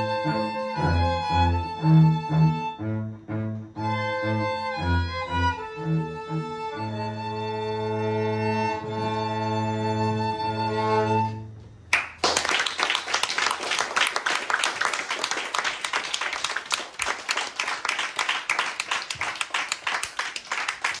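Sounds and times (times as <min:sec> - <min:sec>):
audience applause: 0:11.9 - 0:21.0.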